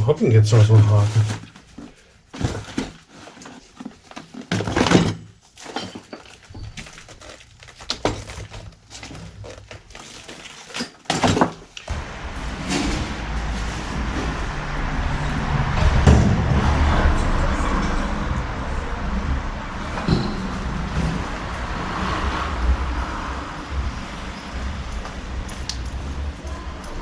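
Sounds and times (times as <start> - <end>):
hard objects clattering: 0.9 - 11.9
steady low rumbling: 11.9 - 27.0.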